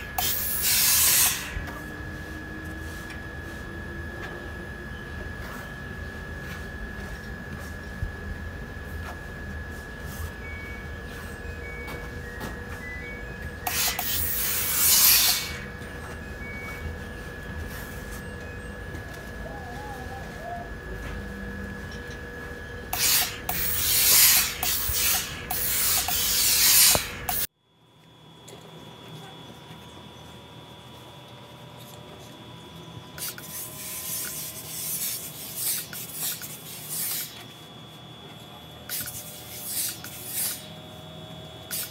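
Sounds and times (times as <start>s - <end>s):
steam iron hissing: 0.0s - 3.8s, 13.6s - 15.8s, 22.9s - 27.5s, 33.2s - 37.4s, 38.9s - 40.8s, 41.7s - 41.9s
machine hum with high whine: 0.0s - 41.9s.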